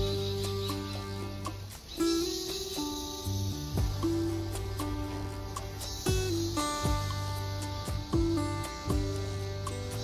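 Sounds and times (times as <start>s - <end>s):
guitar-led background music: 0.0s - 10.0s
steady low bass: 3.3s - 10.0s.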